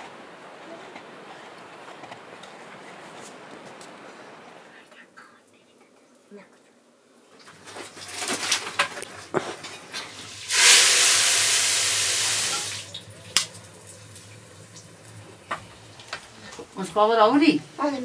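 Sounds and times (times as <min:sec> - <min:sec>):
liquid sizzling in hot oil: 0:10.0 - 0:16.3.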